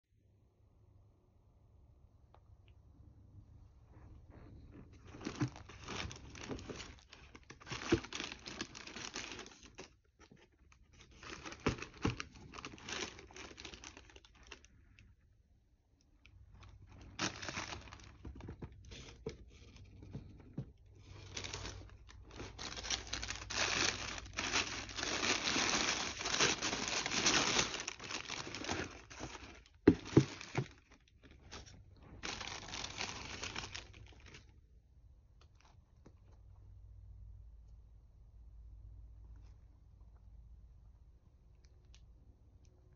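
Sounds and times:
wrapping paper rustling: 0:04.3 - 0:14.8, 0:16.6 - 0:20.3, 0:20.9 - 0:34.5.

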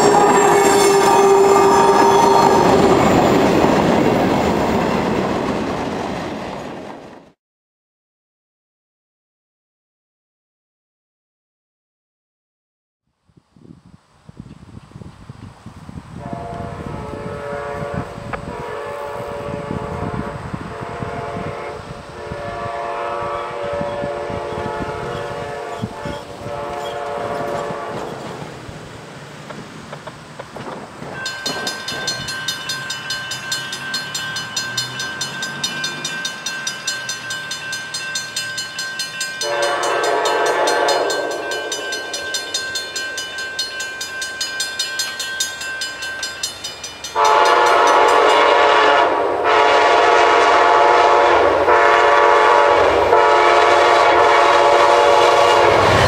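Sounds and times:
train horn blasts: 0:00.0 - 0:03.4, 0:16.2 - 0:28.4, 0:39.2 - 0:43.3, 0:47.1 - 0:56.0
crossing warning bell ringing: 0:00.0 - 0:05.0, 0:31.1 - 0:49.7.

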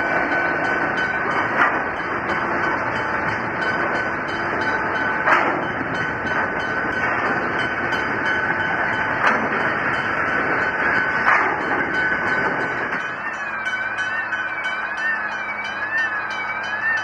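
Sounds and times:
train wheels on rails: 0:00.0 - 0:17.0
wagon clack: 0:05.2 - 0:08.2, 0:11.2 - 0:12.7
high-pitched ring: 0:11.8 - 0:17.0.

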